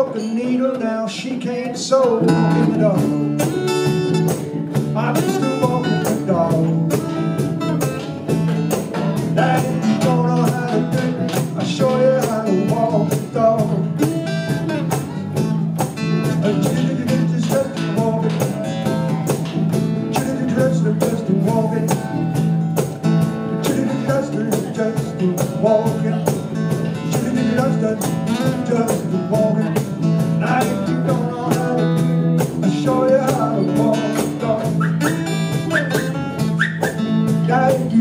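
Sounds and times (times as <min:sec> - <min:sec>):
guitars and ukulele strumming: 0:00.0 - 0:38.0
melodic guitar lead line: 0:00.0 - 0:38.0.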